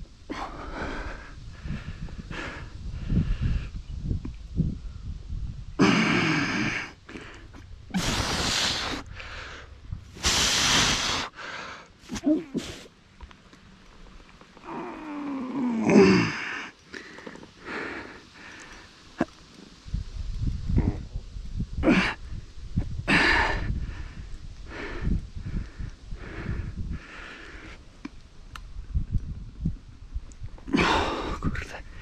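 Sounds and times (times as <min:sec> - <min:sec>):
man breathing heavily: 0:00.2 - 0:03.8, 0:05.8 - 0:12.9, 0:14.6 - 0:19.2, 0:21.8 - 0:28.0, 0:30.6 - 0:32.0
short rush of noise: 0:07.9 - 0:09.0, 0:10.1 - 0:11.3
man groaning: 0:14.7 - 0:16.7.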